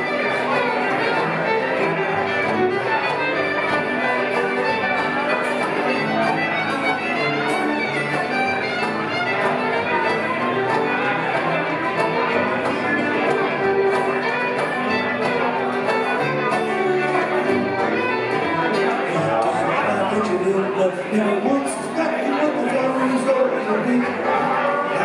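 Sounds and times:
acoustic guitar: 0.0s - 25.0s
banjo: 0.0s - 25.0s
dobro: 0.0s - 25.0s
fiddle: 0.0s - 25.0s.

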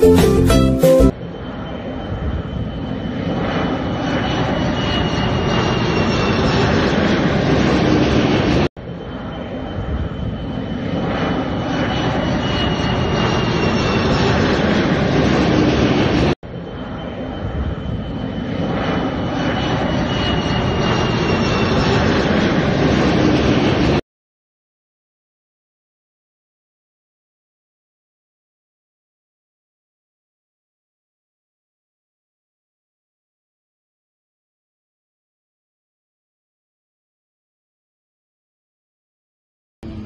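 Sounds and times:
jet airliner roar overhead: 1.1s - 24.0s.

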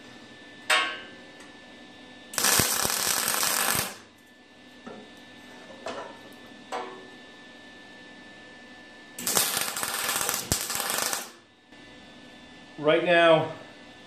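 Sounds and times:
welding arc crackling: 2.4s - 4.1s, 9.2s - 11.4s.

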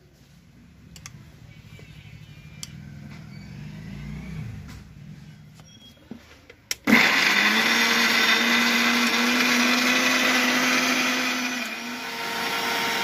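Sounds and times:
mixer grinder motor whining: 6.8s - 13.0s.

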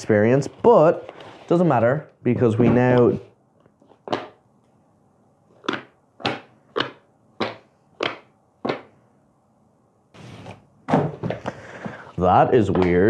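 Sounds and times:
cardboard box scrapes and knocks: 10.2s - 10.6s.

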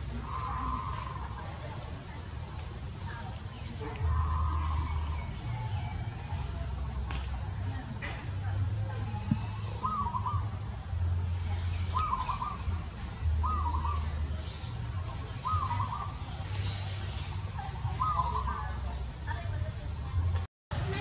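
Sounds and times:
bird warbling call: 0.0s - 1.8s, 4.0s - 6.0s, 9.3s - 18.8s.

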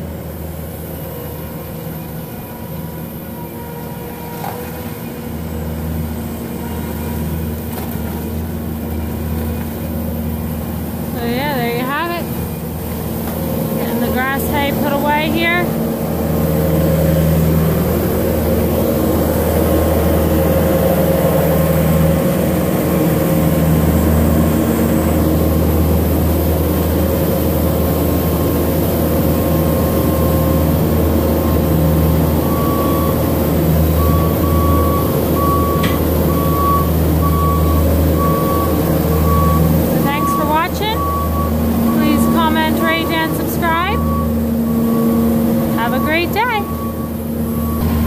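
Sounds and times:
diesel engine running: 0.0s - 48.0s
backup alarm beeping: 13.8s - 15.7s, 29.7s - 48.0s.

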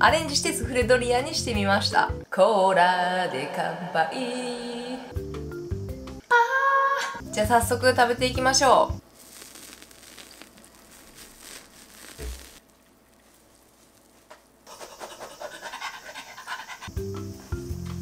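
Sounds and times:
light background music: 0.0s - 2.4s, 3.4s - 6.3s, 7.2s - 9.0s, 16.9s - 18.0s
dog panting: 14.7s - 17.0s.

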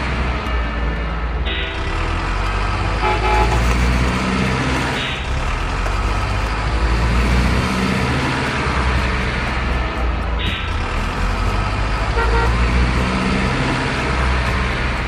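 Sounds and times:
tyres rolling over stone paving: 3.5s - 8.5s.

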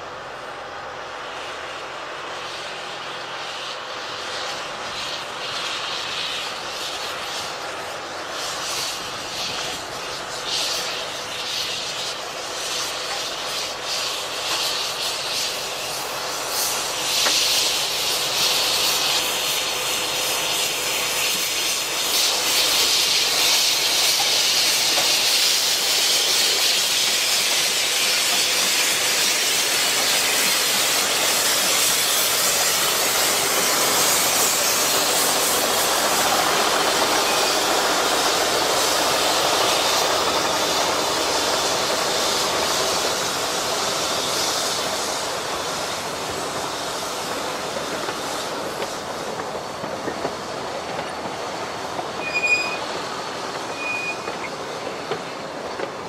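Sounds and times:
steam locomotive hissing: 0.0s - 56.0s.

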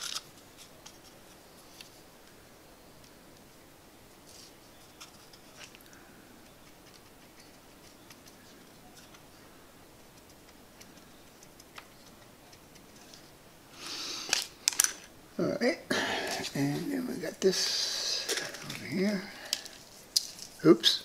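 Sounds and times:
rustle: 0.0s - 15.5s.

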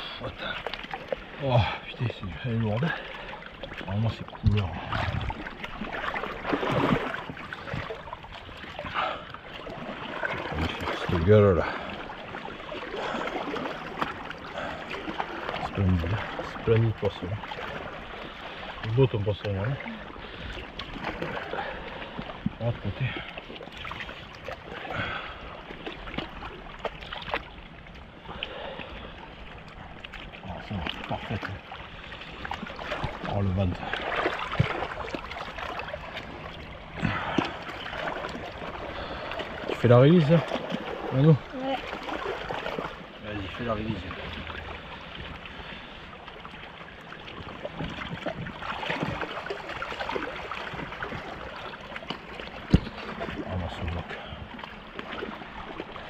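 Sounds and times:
river water lapping: 0.0s - 56.0s.

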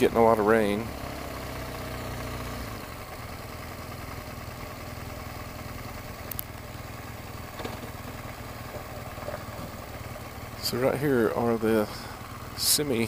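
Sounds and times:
motorcycle engine running: 0.0s - 13.0s
faint click: 6.3s - 6.5s.

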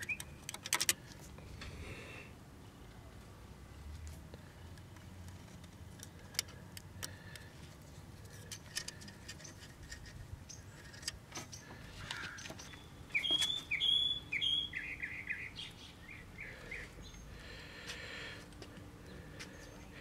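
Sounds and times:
small bird chirping: 0.0s - 0.4s, 10.4s - 17.5s.

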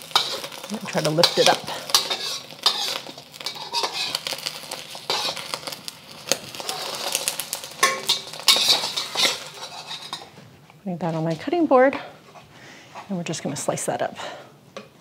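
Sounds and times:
spatula scraping a steel wok: 0.0s - 5.8s, 6.5s - 10.4s.

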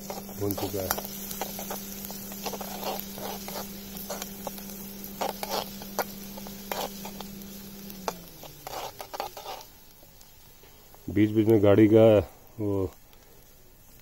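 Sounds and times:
metal spatula scraping a pan: 0.0s - 9.8s
car radiator fan humming: 0.0s - 13.8s
onions sizzling: 0.0s - 14.0s.

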